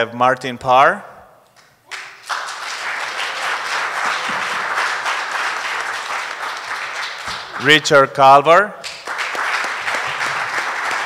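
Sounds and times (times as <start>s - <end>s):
audience applause: 1.9s - 7.8s, 8.9s - 11.0s.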